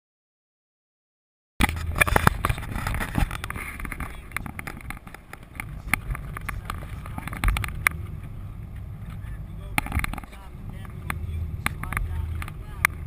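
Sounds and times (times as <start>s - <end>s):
engine and road rumble: 1.6s - 13.0s
sharp clicks and knocks: 1.6s - 13.0s
wind buffeting microphone: 1.6s - 13.0s.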